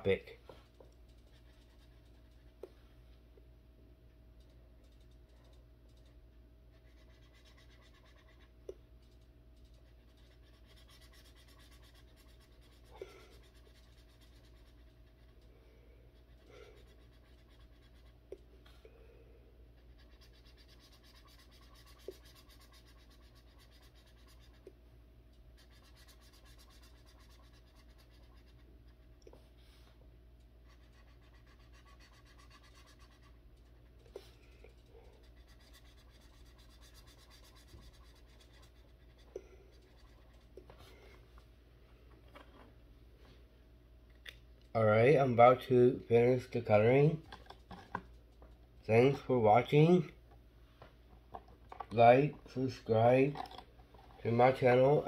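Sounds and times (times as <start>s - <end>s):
marker scratching on paper: 1.2s - 2.6s, 6.7s - 8.5s, 9.6s - 15.5s, 16.2s - 18.2s, 19.8s - 24.7s, 25.6s - 29.5s, 30.6s - 40.9s.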